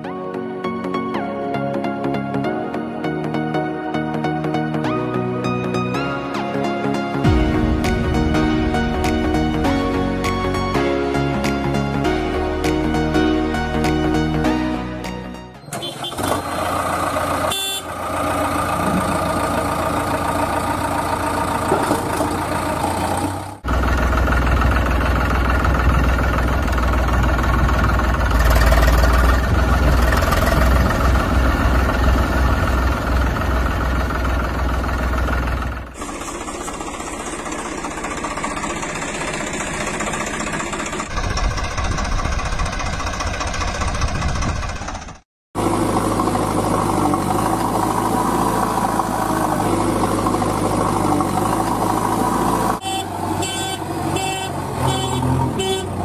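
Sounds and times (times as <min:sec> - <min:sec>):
tractor engine idling: 0:15.6 - 0:56.0.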